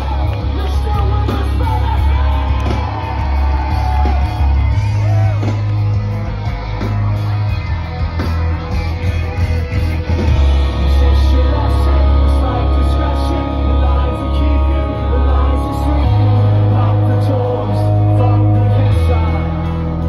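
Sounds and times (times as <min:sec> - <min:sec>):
person singing: 0:00.0 - 0:05.5, 0:10.2 - 0:20.0
rock band playing loud: 0:00.0 - 0:20.0.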